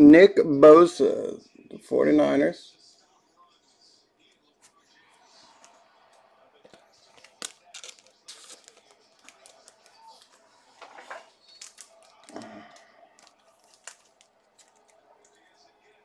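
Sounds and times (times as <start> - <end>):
packaging crinkling and tearing: 7.0 - 15.4.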